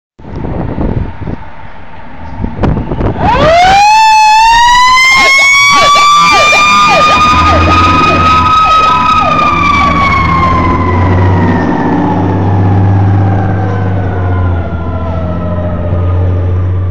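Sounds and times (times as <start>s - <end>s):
diesel engine rumbling: 0.2s - 16.9s
fire truck siren steady tone: 2.0s - 16.9s
siren yelping rapidly: 3.2s - 13.6s.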